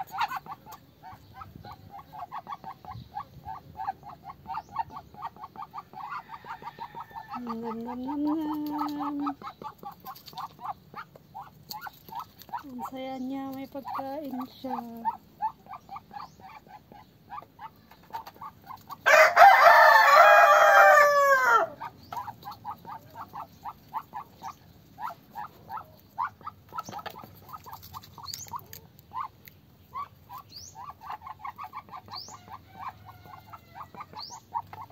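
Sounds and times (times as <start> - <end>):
rooster crowing: 6.1 - 7.4, 19.0 - 21.8
soft short chirping calls: 22.0 - 32.4.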